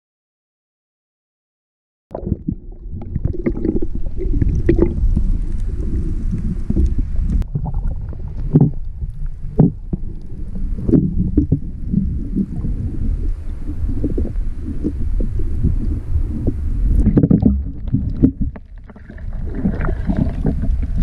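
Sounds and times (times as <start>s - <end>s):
muffled underwater sloshing: 2.1s - 21.0s.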